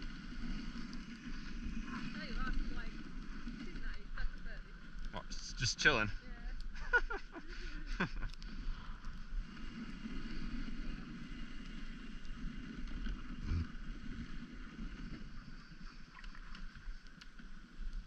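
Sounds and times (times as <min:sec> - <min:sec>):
sled runners hissing on snow: 0:00.0 - 0:04.0
wind on microphone: 0:13.3 - 0:13.7.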